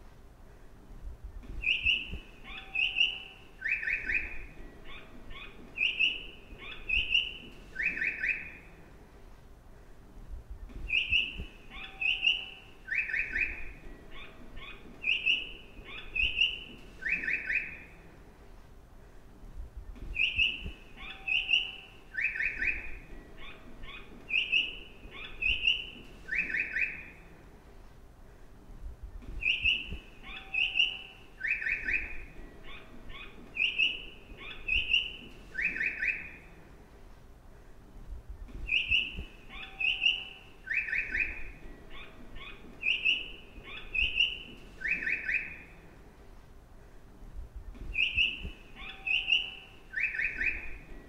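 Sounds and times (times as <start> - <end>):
recorded birdsong chirps: 0.0 - 51.0.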